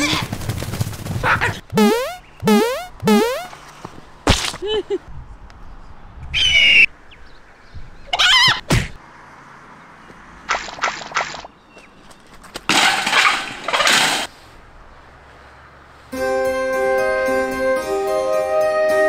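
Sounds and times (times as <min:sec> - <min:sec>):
wobbling boing: 0:01.7 - 0:03.5.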